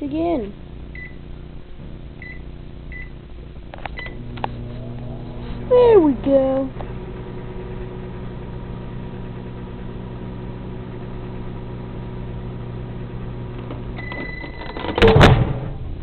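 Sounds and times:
microwave oven humming: 0.0s - 16.0s
microwave short beep: 0.9s - 1.2s, 2.2s - 3.2s, 4.0s - 4.3s, 13.9s - 15.2s.

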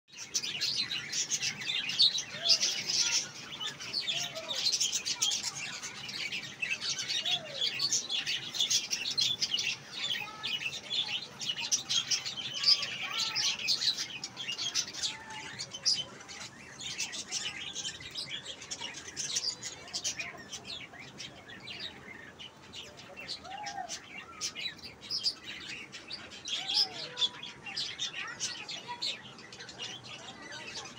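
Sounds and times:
budgerigars chirping and chattering: 0.1s - 30.9s.

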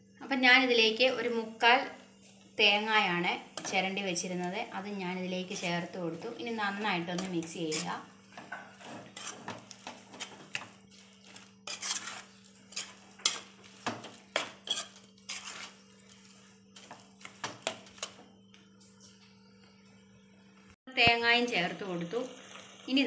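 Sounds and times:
steady low hum: 0.0s - 20.8s
spoon scraping metal pan: 5.4s - 18.2s.

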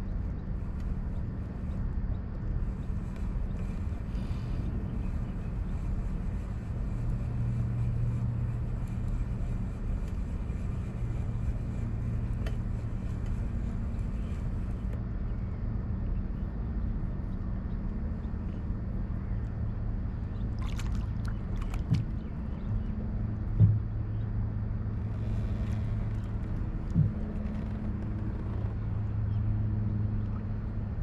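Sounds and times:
water and wind noise: 0.0s - 31.0s
boat motor humming: 2.1s - 31.0s
fish splashing: 20.6s - 22.3s.

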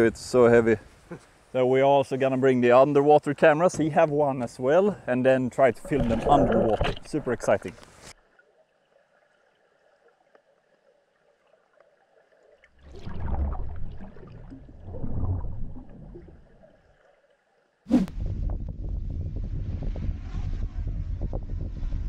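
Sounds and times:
water gurgling and sloshing: 5.4s - 18.1s
wind buffeting microphone: 18.0s - 22.0s.

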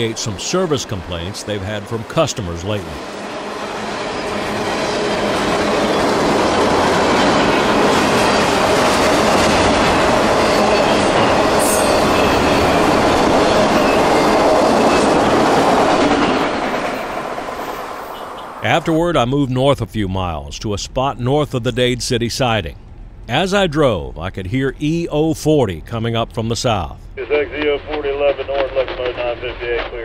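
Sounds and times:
train wheels clattering on rails: 3.0s - 18.4s.

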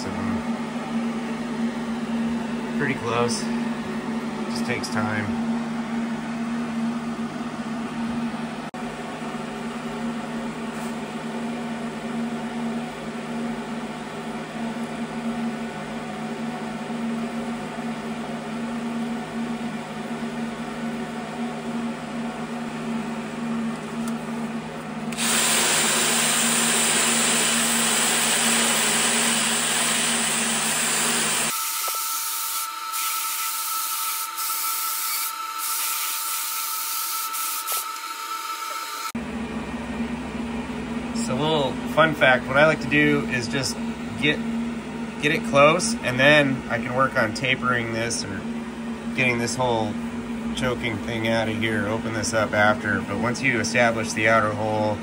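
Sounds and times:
die grinder grinding metal: 25.1s - 39.1s.

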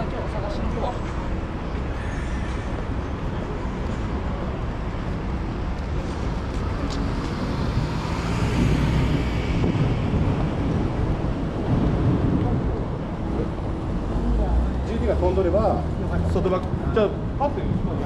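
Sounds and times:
street traffic: 0.0s - 18.0s
car passing close by: 7.0s - 10.8s.

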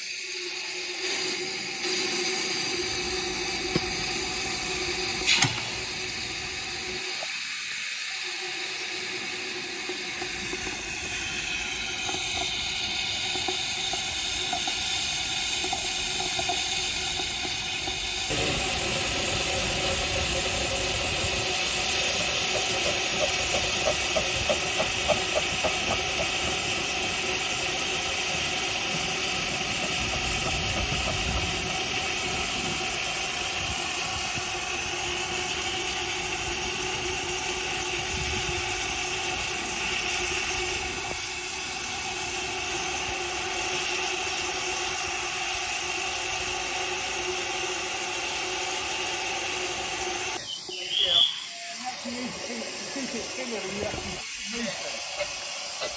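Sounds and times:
steam hissing from locomotive: 0.0s - 55.9s.

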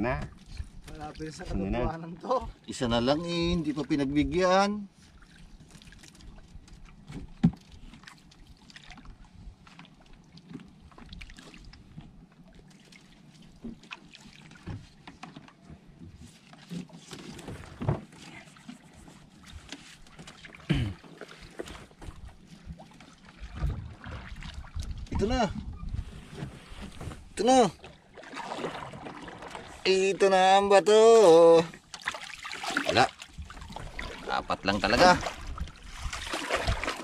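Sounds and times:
water dripping and splashing: 5.1s - 15.6s, 19.4s - 25.3s, 27.8s - 29.9s, 31.7s - 37.0s
sharp knocks against boat: 7.1s - 7.7s, 14.6s - 18.2s.

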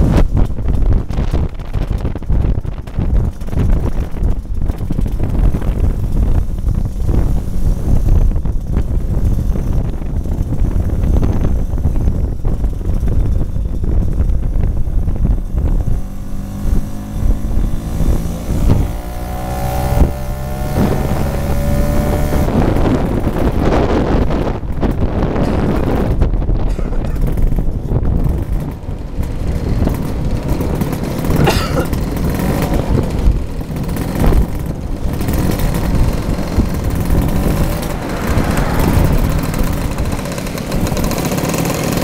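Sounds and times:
motor scooter engine running: 0.0s - 42.0s
wind buffeting microphone: 0.0s - 42.0s.

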